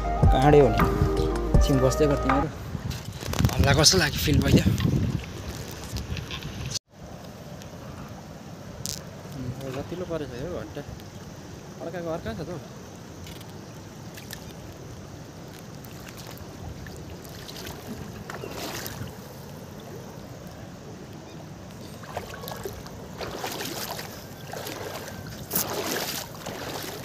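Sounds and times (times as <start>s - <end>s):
water splashes: 8.7s - 27.0s
river water rushing: 11.2s - 27.0s.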